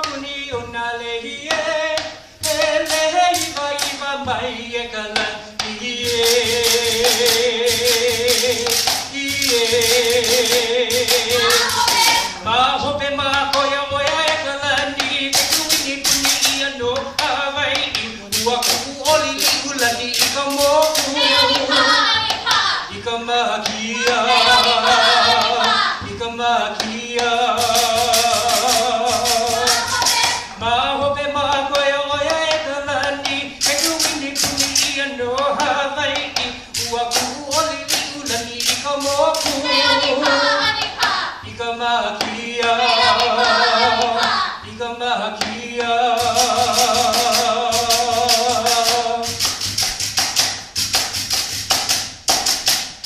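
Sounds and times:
gourd drum: 0.0 - 53.0
dance sticks clicking: 5.2 - 12.4, 13.3 - 22.9, 27.6 - 30.6, 31.5 - 41.4, 46.2 - 53.0.

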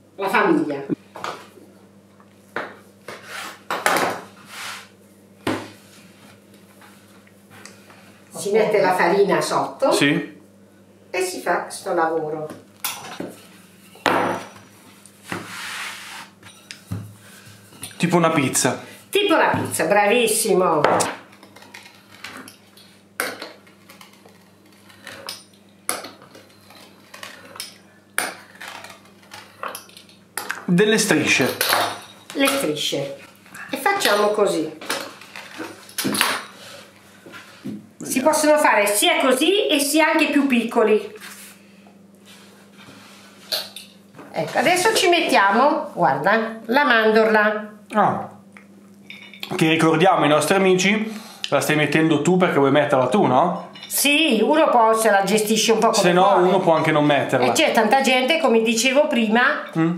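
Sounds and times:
knife scraping on wooden board: 26.2 - 27.8.

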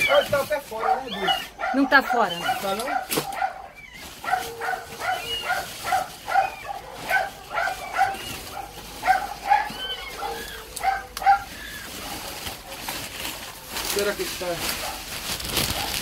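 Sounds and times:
kittens mewing: 0.0 - 12.7.

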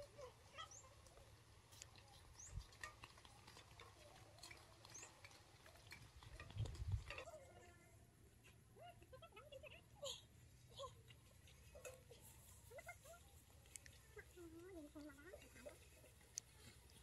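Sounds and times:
small ticks: 0.6 - 7.2, 11.4 - 17.0.

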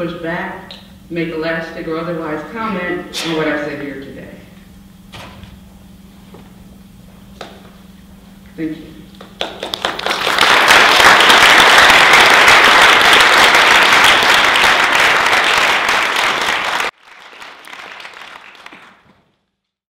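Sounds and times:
audience applauding: 9.4 - 19.3.

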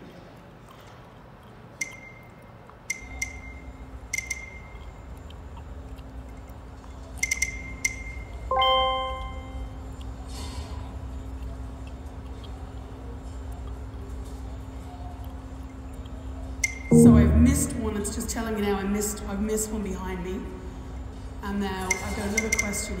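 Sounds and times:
ticking interface clicks: 1.8 - 4.9
low steady hum: 8.2 - 10.2, 13.0 - 21.9
multi-tone chime: 8.5 - 9.6, 16.9 - 18.0.

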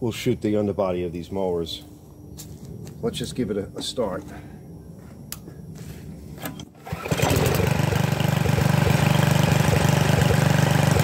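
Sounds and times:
small engine starting and running: 6.4 - 11.0.

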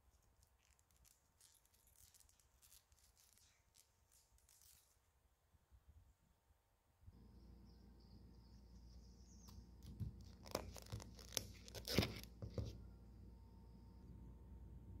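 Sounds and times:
thin plastic crinkling and clicking: 0.0 - 5.0, 9.8 - 12.7
faint high whine: 5.3 - 10.3, 12.7 - 15.0.

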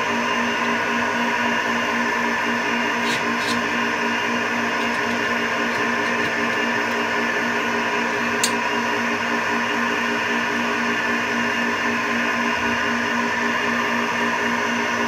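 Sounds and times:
metal lathe running: 2.8 - 8.7.

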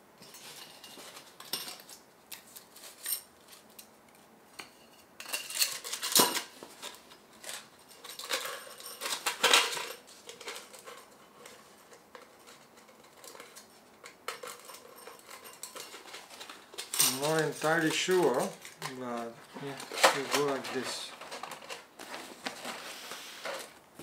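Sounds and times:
metal stove parts clinking: 5.2 - 18.9.

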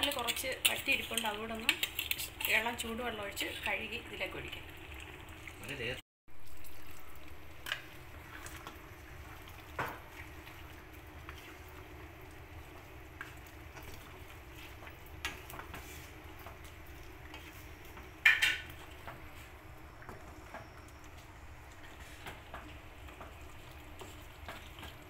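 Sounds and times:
curry simmering with faint hiss: 0.0 - 25.0
wooden spatula scraping pan: 13.2 - 16.6, 17.2 - 19.5.

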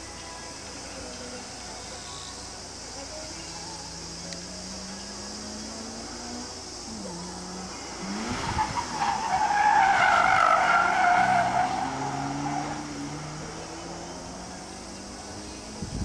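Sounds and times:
tyres squealing: 7.4 - 14.9.

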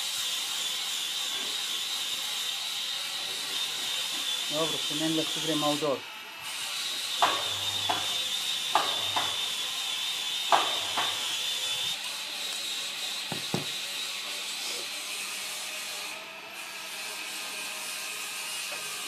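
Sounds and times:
short knocks on wood: 13.3 - 13.7.

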